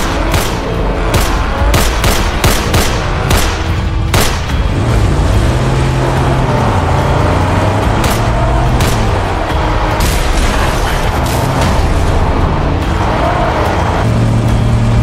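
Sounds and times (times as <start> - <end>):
gunshots: 0.0 - 4.7
vehicle engine driving: 0.0 - 15.0.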